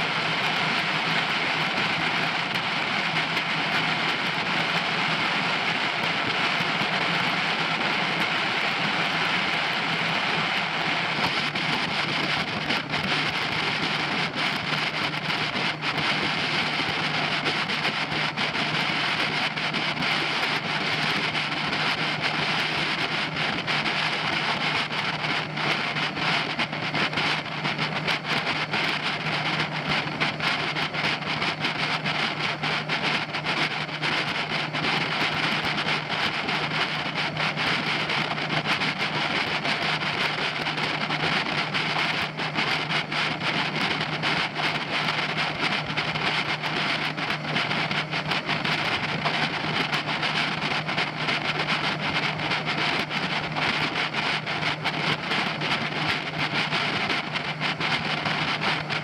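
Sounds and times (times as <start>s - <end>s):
outboard engine drone: 0.0s - 59.0s
water along hull: 0.0s - 59.0s.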